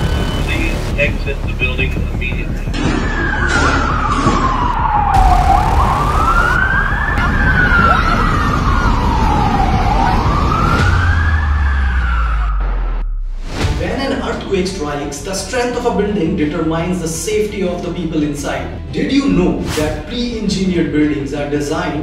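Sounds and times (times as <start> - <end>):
steady rushing noise: 0.0 - 2.5
siren wailing: 2.7 - 13.2.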